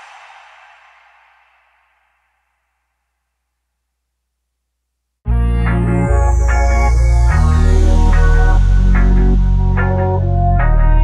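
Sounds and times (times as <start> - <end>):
electronic music with heavy bass: 5.3 - 11.0.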